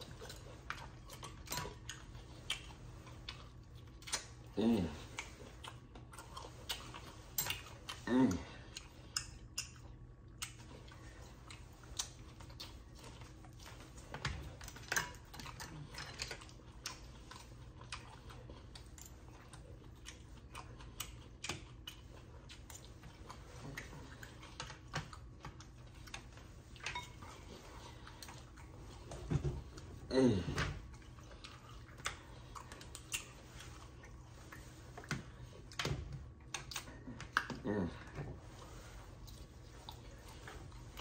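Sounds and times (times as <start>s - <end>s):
person chewing: 0.0s - 41.0s
cutlery against a plate: 26.8s - 27.3s.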